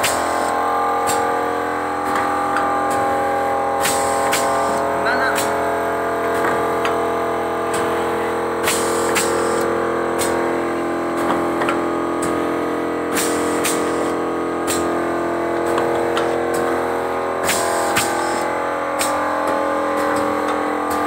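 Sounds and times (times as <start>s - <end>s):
pneumatic clack and hiss: 0.0s - 1.3s, 2.0s - 3.2s, 3.8s - 5.5s, 8.6s - 10.5s, 11.2s - 12.5s, 13.1s - 15.0s, 15.6s - 16.8s, 17.4s - 21.0s
packing machine hum: 0.0s - 21.0s.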